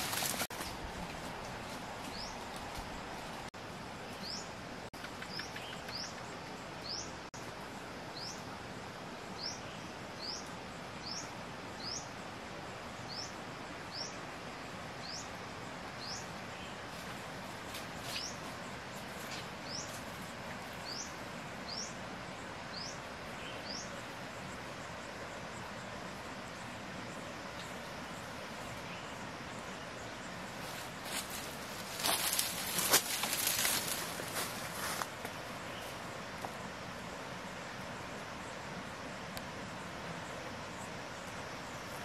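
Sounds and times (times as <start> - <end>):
steady background hiss: 0.0 - 42.0
bird chirping: 4.1 - 7.2.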